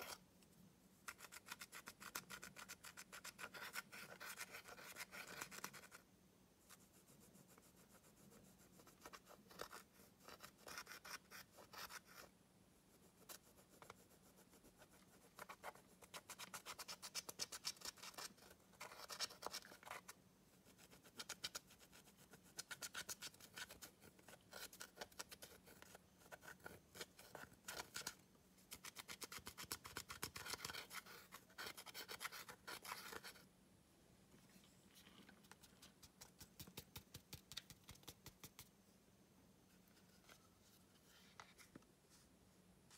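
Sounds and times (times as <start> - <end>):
stick scraping eyeshadow powder: 1.0 - 6.0, 8.8 - 12.3, 20.7 - 33.4.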